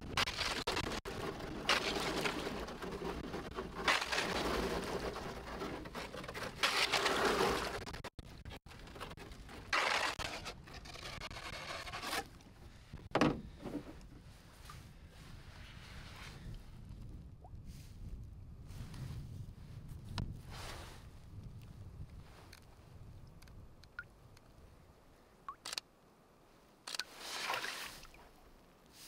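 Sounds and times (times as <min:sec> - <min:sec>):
thin ice crackling against canoe: 0:00.1 - 0:12.9.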